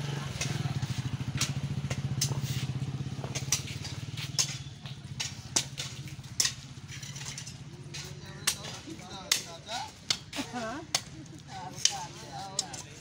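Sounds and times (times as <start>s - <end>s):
vehicle engine throbbing: 0.0s - 6.9s.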